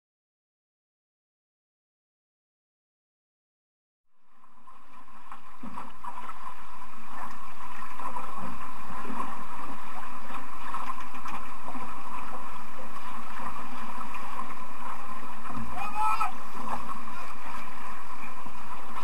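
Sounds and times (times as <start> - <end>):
water noise: 4.1 - 19.0
wind: 4.1 - 19.0.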